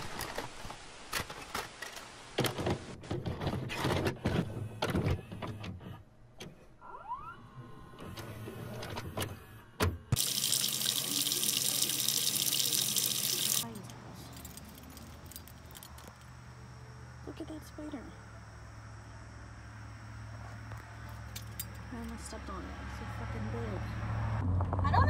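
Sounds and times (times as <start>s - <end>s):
tap water running into sink: 10.2s - 13.6s.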